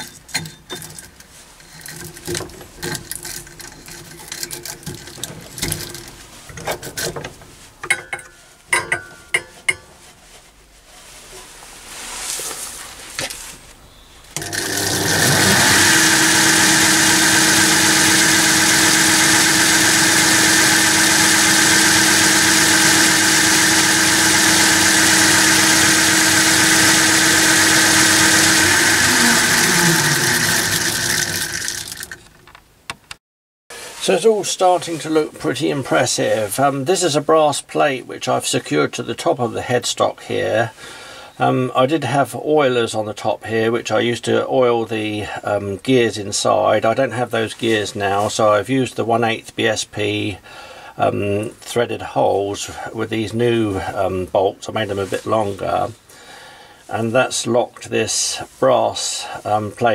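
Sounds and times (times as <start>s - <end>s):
lathe motor humming: 14.4s - 32.1s.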